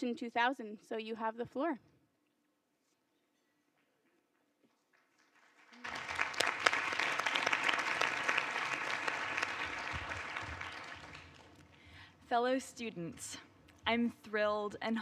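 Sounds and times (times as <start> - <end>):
audience applauding: 5.0 - 11.8.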